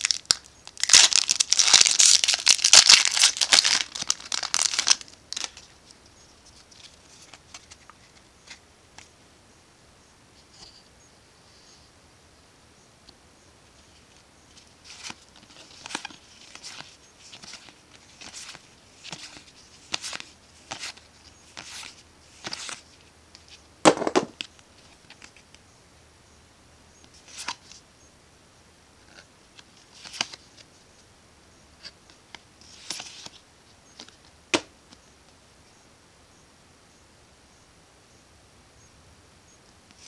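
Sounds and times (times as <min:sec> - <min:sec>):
cards sliding and flicking: 0:14.9 - 0:22.8.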